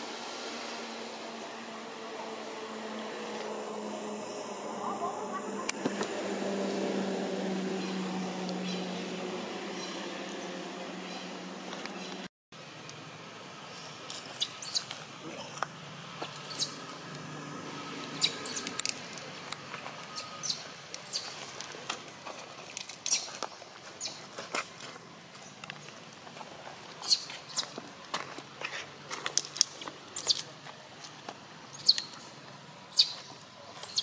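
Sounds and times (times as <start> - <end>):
baby monkey squeaking: 14.3 - 14.9, 16.4 - 16.8, 18.2 - 18.7, 27.0 - 27.7, 31.7 - 32.1, 32.9 - 33.2.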